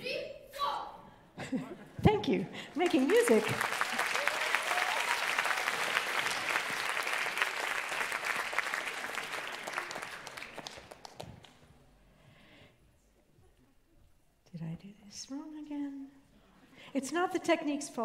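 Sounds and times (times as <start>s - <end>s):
audience applauding: 2.6s - 11.6s.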